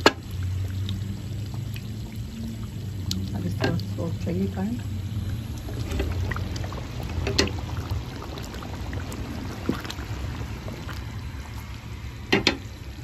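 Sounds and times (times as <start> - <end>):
curry simmering and bubbling: 0.0 - 13.0
low steady rumble: 0.0 - 13.0.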